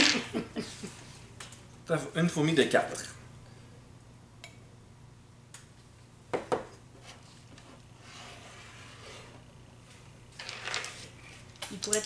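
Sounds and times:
game pieces knocking on board: 0.0 - 0.4.

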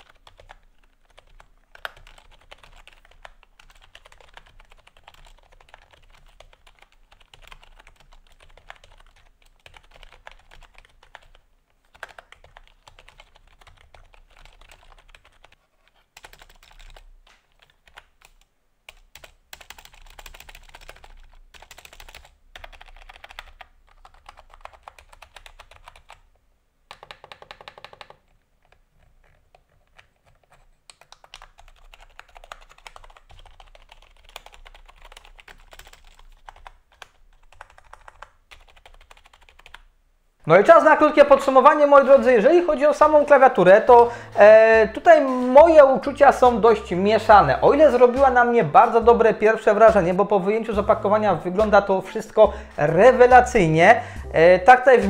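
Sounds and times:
typing on membrane keyboard: 0.0 - 26.2, 26.9 - 39.9.

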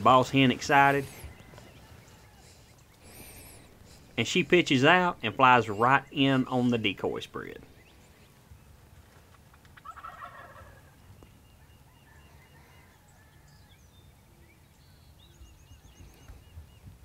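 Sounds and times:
distant turkeys gobbling: 0.0 - 7.9, 9.4 - 13.4.

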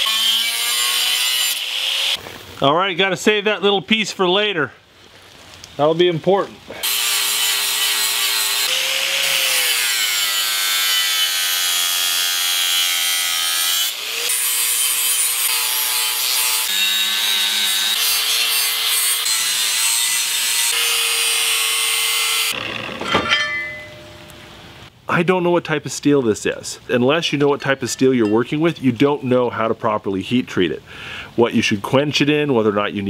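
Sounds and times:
angle grinder grinding steel: 0.0 - 2.2, 6.8 - 24.4.

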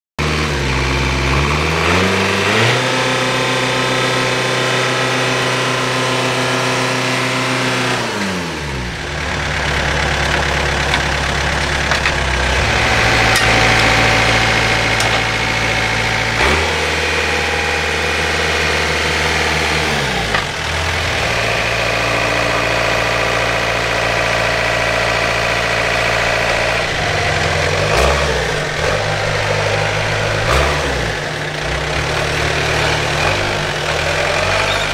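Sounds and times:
tractor diesel engine revving: 0.2 - 34.9.

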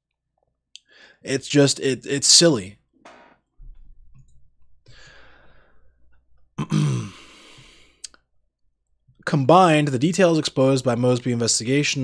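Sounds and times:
man breathing in softly: 0.9 - 1.2, 4.9 - 6.0, 7.2 - 8.0
man sighing: 6.6 - 8.0.

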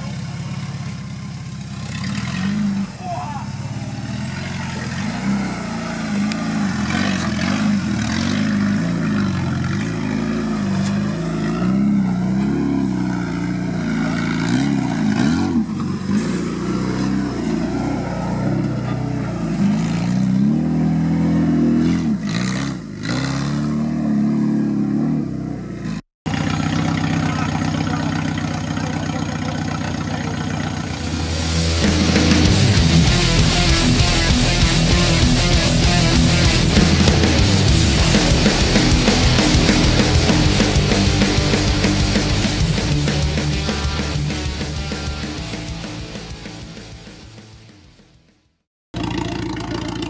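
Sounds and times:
engine revving under load: 0.0 - 47.9.

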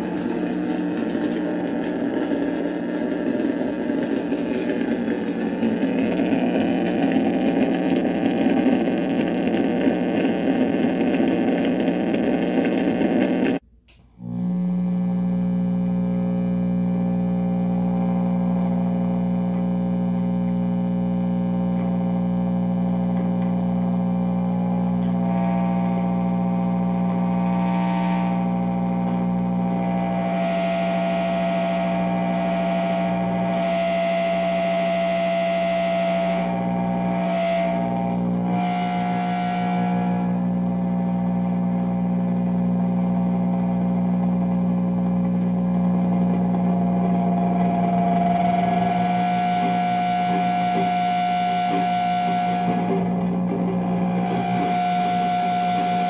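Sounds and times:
drone of layered tones: 0.0 - 13.6, 29.8 - 40.5, 47.2 - 56.0
high steady tone: 0.0 - 43.5, 45.5 - 56.0
dense crackling noise: 0.0 - 56.0.

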